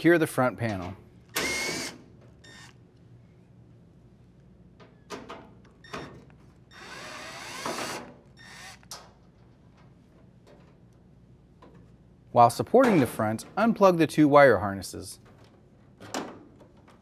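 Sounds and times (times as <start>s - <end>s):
power screwdriver bursts: 1.3s - 2.7s, 6.7s - 8.9s.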